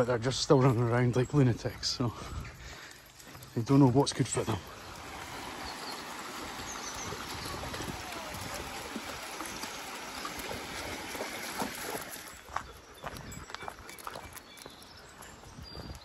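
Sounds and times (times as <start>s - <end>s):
stream running over stones: 3.6s - 12.7s
dogs splashing in water: 4.6s - 12.9s.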